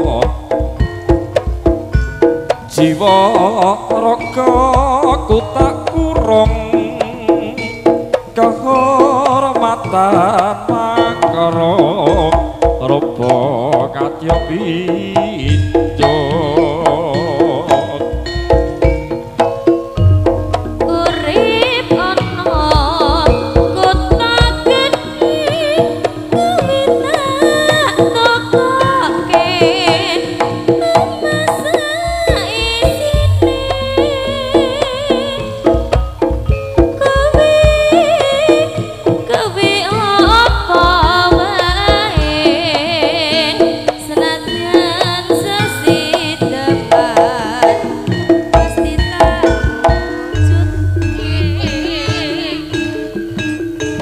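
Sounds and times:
drum beats: 0:00.0 - 0:54.0
wavering melody line: 0:00.0 - 0:54.0
high wavering melody: 0:43.2 - 0:54.0.

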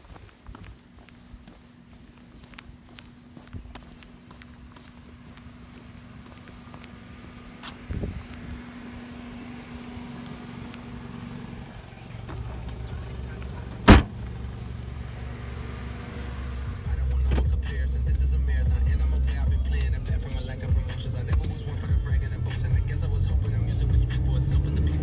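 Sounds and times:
car engine running: 0:00.8 - 0:25.0
car hatch slamming shut: 0:13.8 - 0:14.2.

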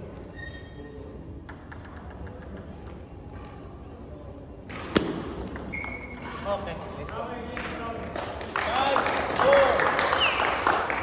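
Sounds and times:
table tennis ball strokes: 0:01.4 - 0:03.0.

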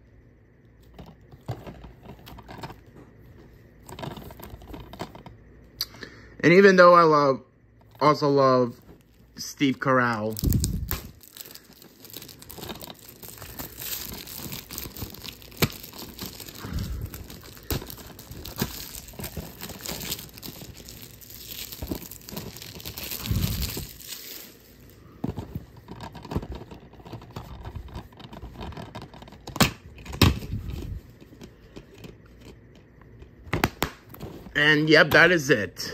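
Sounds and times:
plastic wrap crinkling and tearing: 0:09.0 - 0:25.0.

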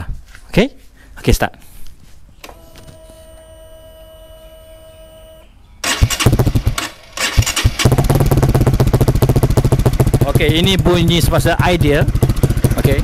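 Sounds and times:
motorcycle engine running: 0:05.8 - 0:13.0.

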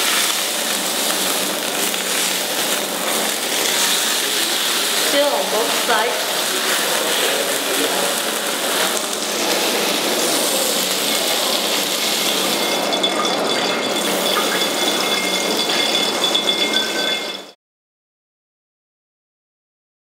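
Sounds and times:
meat sizzling in a frying pan: 0:00.0 - 0:15.7
thin high whine: 0:00.0 - 0:17.6.

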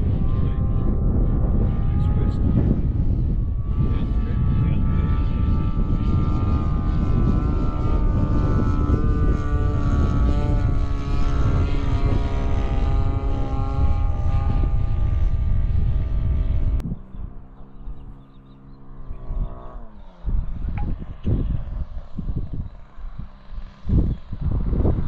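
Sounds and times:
model airplane motor whine: 0:00.0 - 0:25.0
wind rumble on microphone: 0:00.0 - 0:25.0.

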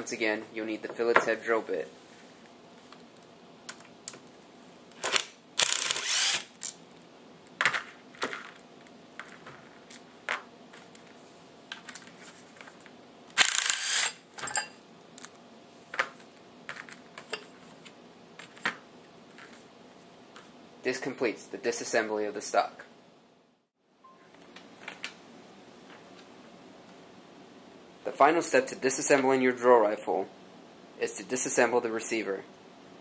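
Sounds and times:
cordless power driver running: 0:05.1 - 0:06.5, 0:13.4 - 0:14.1
clicks and knocks of parts handled: 0:11.7 - 0:13.8.

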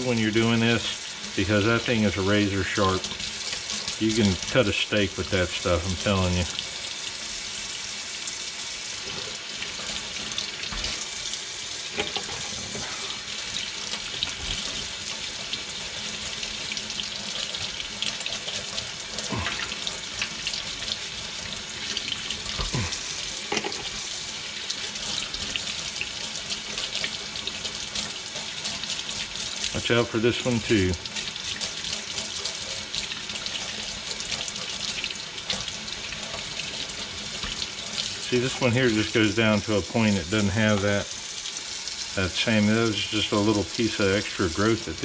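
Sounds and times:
tap water running into sink: 0:00.0 - 0:45.0.

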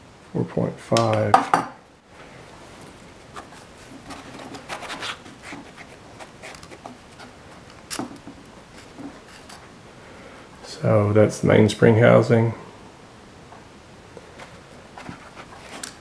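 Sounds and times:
pistol handling rubbing and clicks: 0:05.0 - 0:09.6, 0:15.6 - 0:16.0.

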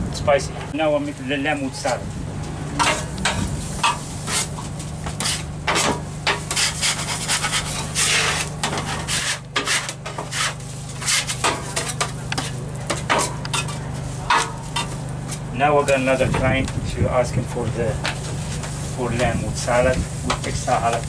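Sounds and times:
steady low hum: 0:00.0 - 0:21.0
metal spatula scraping griddle: 0:02.6 - 0:15.5.

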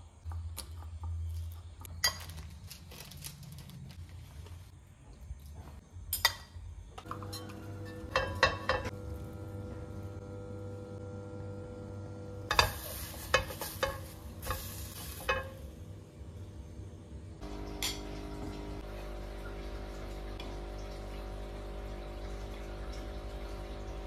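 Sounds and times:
steady low hum: 0:04.1 - 0:24.0
food frying: 0:12.4 - 0:15.8
spatula scraping a frying pan: 0:12.5 - 0:15.6.

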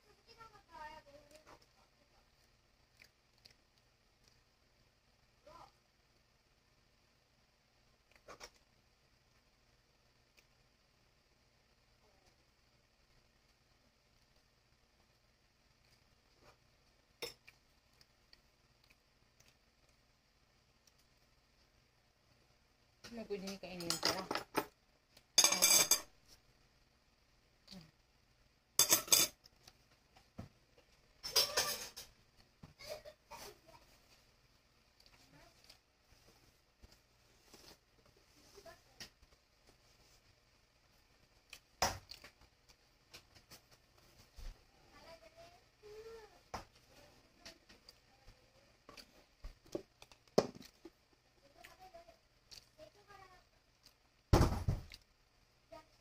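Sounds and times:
tableware clatter: 0:23.8 - 0:24.7, 0:25.4 - 0:26.1, 0:28.8 - 0:29.4, 0:31.2 - 0:32.1.

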